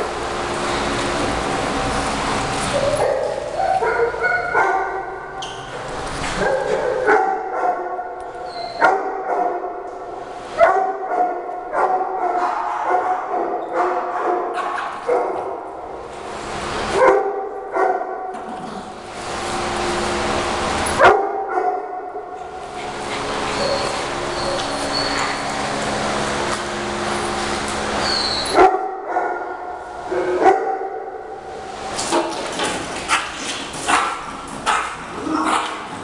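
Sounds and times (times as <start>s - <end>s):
small dogs barking and yapping: 2.6s - 5.2s, 22.8s - 26.3s, 33.0s - 36.0s.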